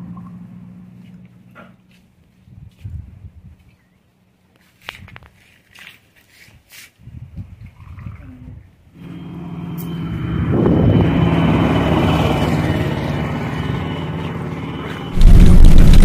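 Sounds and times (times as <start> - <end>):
vehicle engine humming: 9.0 - 16.0.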